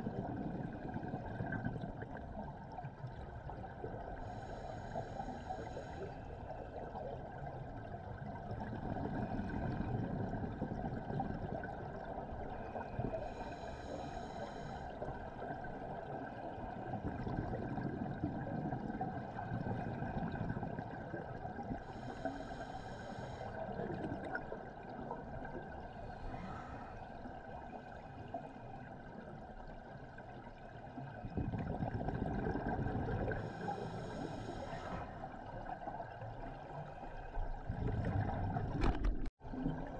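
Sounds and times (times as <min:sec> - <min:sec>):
rumble of exhaled bubbles: 0:00.0 - 0:13.7, 0:14.6 - 0:22.4, 0:23.3 - 0:39.9
regulator inhalation hiss: 0:13.3 - 0:14.9.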